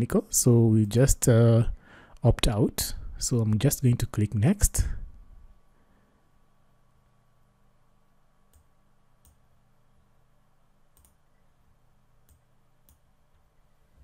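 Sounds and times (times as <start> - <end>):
faint low hum: 0.0 - 14.0
computer mouse clicks: 10.9 - 11.3.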